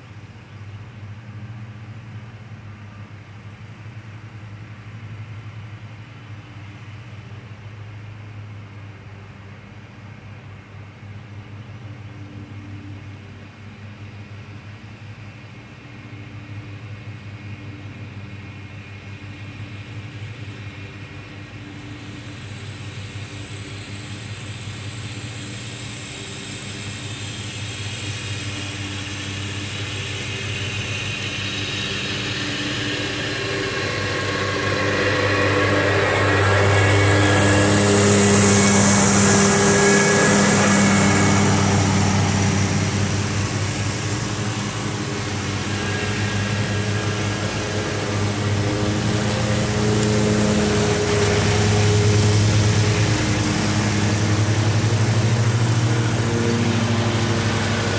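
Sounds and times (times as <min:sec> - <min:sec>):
lawn mower engines humming: 0:19.4 - 0:57.9.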